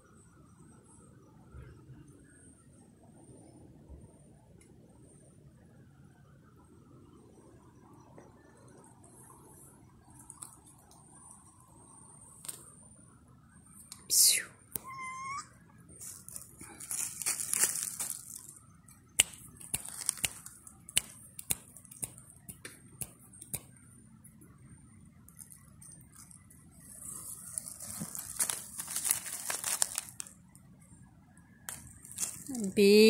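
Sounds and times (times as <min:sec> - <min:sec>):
dry leaves rustling and crackling: 0:16.0 - 0:18.6, 0:19.3 - 0:20.6, 0:26.9 - 0:30.4, 0:31.7 - 0:32.9.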